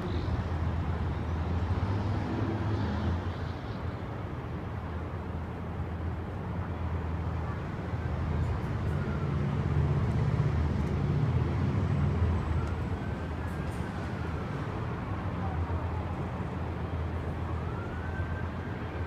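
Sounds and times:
low traffic rumble: 0:00.0 - 0:19.0
faint emergency siren wailing: 0:07.3 - 0:10.8, 0:11.4 - 0:19.0.

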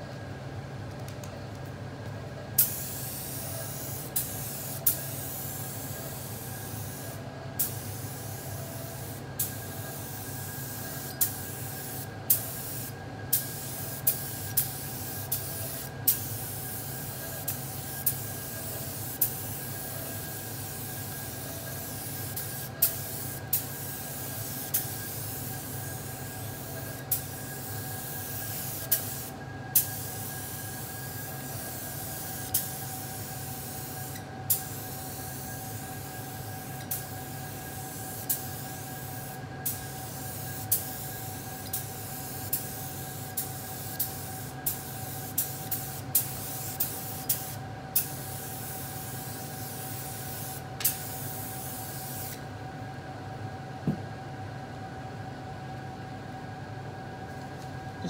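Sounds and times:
spray gun hissing: 0:02.6 - 0:35.8.

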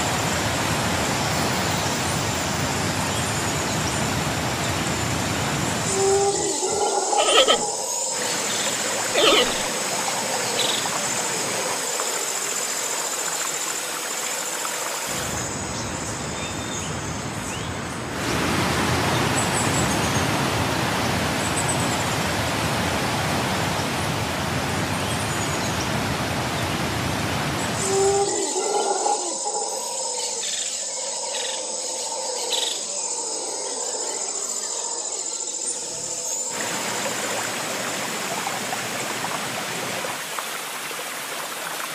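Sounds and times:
waterfall and river rapids rushing: 0:00.0 - 0:27.9, 0:36.5 - 0:41.9
brief pitched calls: 0:07.1 - 0:07.7, 0:09.1 - 0:09.7.

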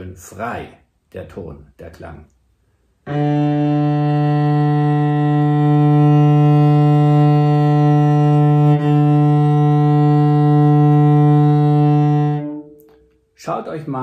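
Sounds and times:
cello bowing long low note: 0:03.0 - 0:13.0.

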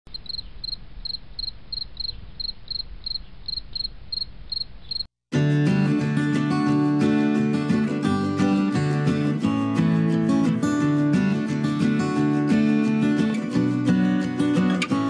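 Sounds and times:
cricket chirping: 0:00.1 - 0:05.1
strummed acoustic guitar: 0:05.3 - 0:15.0.

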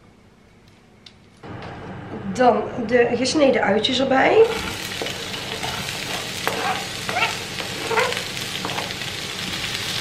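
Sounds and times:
onion sizzling in hot oil: 0:04.4 - 0:10.0
stirring in a pan: 0:04.4 - 0:10.0.

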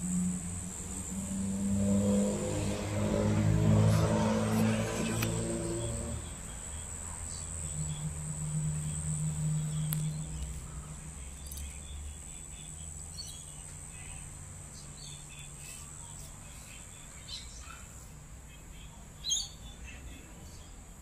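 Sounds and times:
distant jet rumble overhead: 0:00.0 - 0:11.3
high-pitched whine: 0:00.0 - 0:17.6
faint chirps: 0:03.8 - 0:20.9.

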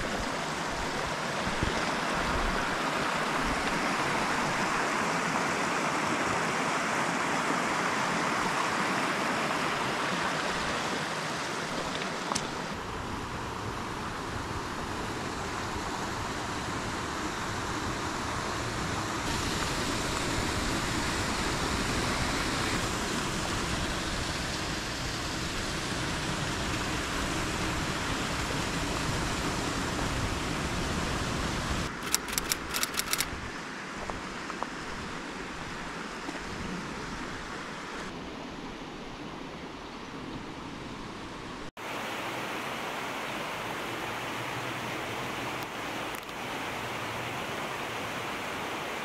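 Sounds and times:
mountain stream rushing: 0:00.0 - 0:49.0
sharp clicks: 0:31.9 - 0:33.3.

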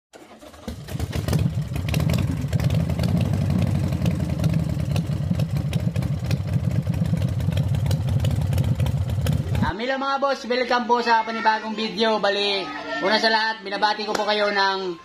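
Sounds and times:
motorcycle engine running: 0:00.4 - 0:09.7.

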